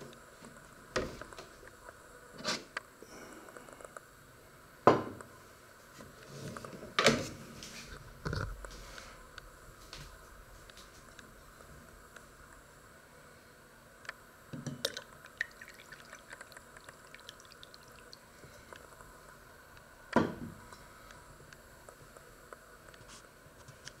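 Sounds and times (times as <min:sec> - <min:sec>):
liquid pouring into a mug: 0:14.8 - 0:18.6.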